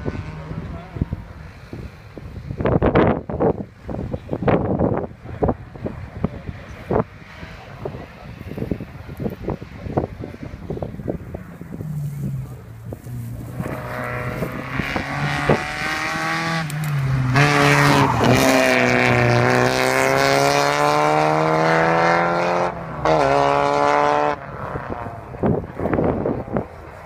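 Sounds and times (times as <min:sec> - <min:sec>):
car accelerating past: 0:11.5 - 0:26.7.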